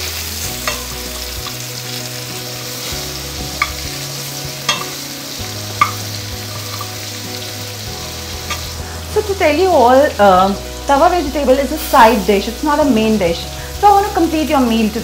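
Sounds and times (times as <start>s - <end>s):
food sizzling in a pan: 0.0s - 15.0s
metal spatula stirring food: 0.4s - 2.0s, 2.8s - 7.1s
spatula tapping a pan: 0.6s - 1.6s, 3.5s - 4.0s, 4.6s - 5.0s, 5.8s - 7.0s.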